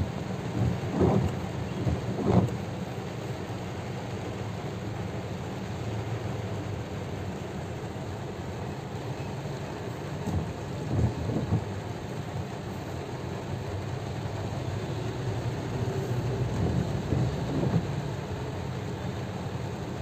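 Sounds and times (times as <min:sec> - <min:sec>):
low rumble: 0:00.0 - 0:02.6
heavy rain on a car roof: 0:00.0 - 0:20.0.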